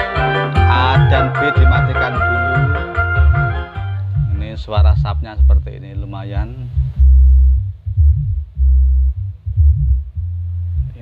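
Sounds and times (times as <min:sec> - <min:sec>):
held keyboard melody notes: 0:00.0 - 0:05.2
heavy bass line: 0:00.0 - 0:11.0.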